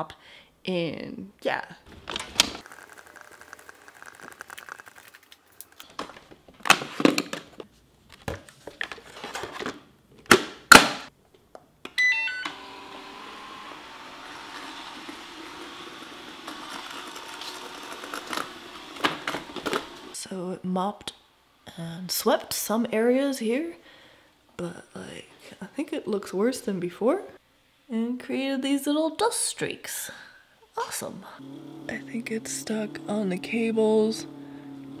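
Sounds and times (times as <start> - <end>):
robot vacuum motor humming: 2.6 - 5.2, 12.5 - 20.2, 31.4 - 35.0.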